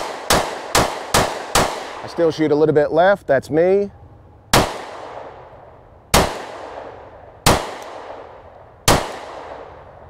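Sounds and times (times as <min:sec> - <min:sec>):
pistol shots echoing: 0:00.0 - 0:02.2, 0:04.5 - 0:05.5, 0:06.1 - 0:10.0.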